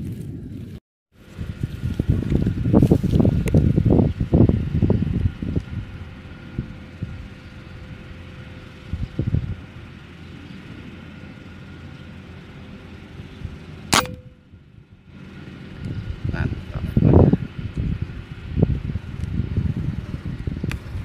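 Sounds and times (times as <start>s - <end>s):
air rifle shot: 14.0s - 14.3s.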